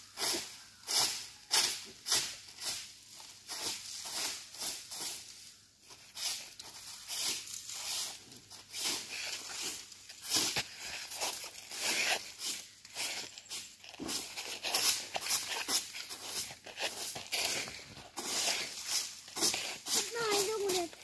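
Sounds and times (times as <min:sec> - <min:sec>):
plastic sheet rustling and crinkling: 0:05.8 - 0:21.0.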